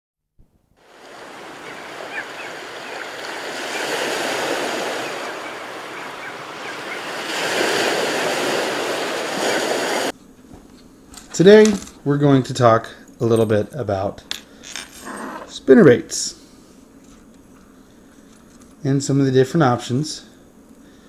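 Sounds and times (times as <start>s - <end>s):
ocean waves washing in: 0.8s - 10.1s.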